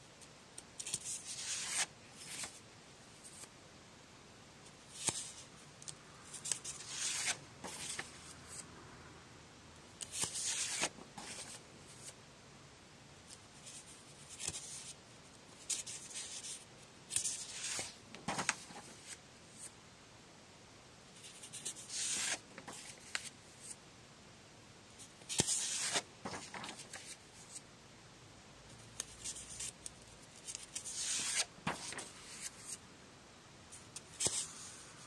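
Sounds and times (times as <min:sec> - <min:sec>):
paper sheets rustling: 0:06.3 - 0:08.2, 0:15.6 - 0:19.2, 0:21.3 - 0:23.8, 0:25.3 - 0:27.6, 0:30.4 - 0:32.8, 0:34.0 - 0:34.8.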